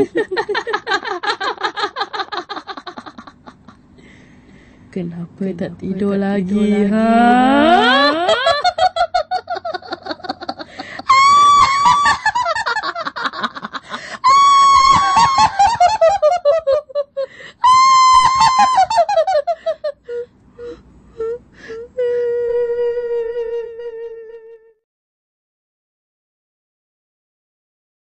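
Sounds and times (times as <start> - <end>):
witch's cackling laugh: 0.0 - 3.9, 7.6 - 20.2
long wavering moan: 6.5 - 8.6, 20.1 - 24.8.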